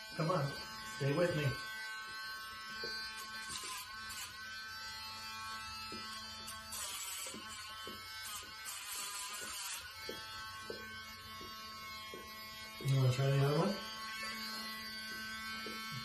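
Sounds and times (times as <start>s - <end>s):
electric nail grinder buzzing: 0.0s - 16.0s
grinder grinding dog's claw: 0.9s - 10.9s.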